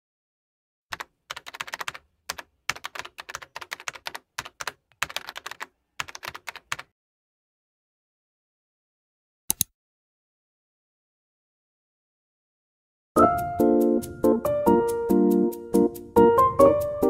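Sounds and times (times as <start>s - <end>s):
keyboard typing clicks: 0.9s - 6.9s.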